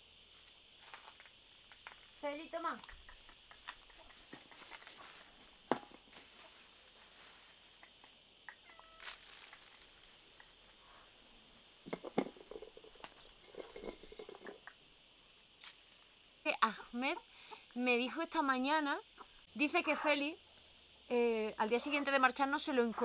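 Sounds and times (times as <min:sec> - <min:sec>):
high insect drone: 0:00.0 - 0:23.0.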